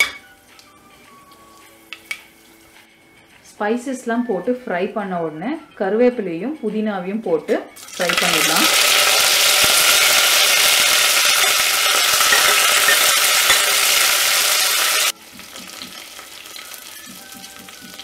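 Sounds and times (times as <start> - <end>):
leaves sizzling in hot oil: 7.8 - 18.0.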